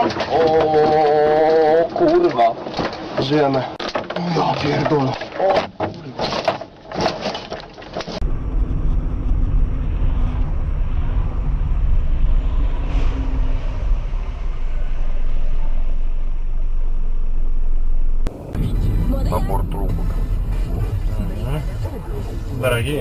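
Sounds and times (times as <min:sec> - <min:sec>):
tyres on road: 0:00.0 - 0:23.0
car engine rumble: 0:06.6 - 0:23.0.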